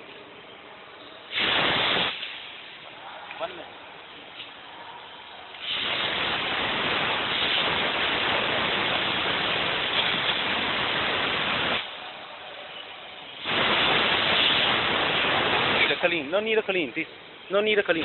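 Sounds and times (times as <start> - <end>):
compressed air hissing: 1.3 - 2.7, 5.6 - 12.0, 13.3 - 16.2.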